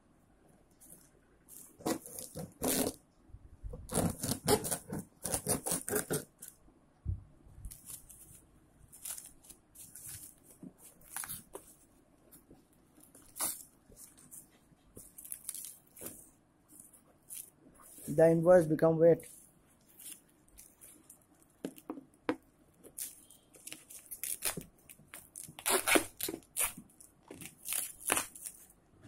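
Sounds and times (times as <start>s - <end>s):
bubble wrap crinkling and tearing: 0.8s - 3.0s, 3.9s - 6.6s, 7.7s - 11.9s, 12.9s - 18.1s, 19.8s - 21.9s, 22.7s - 28.8s.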